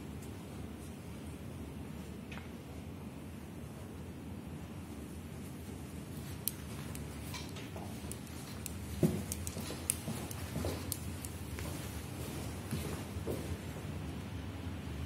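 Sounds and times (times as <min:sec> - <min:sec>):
low room hum: 0:00.0 - 0:15.0
soft knocks from walking: 0:06.2 - 0:13.9.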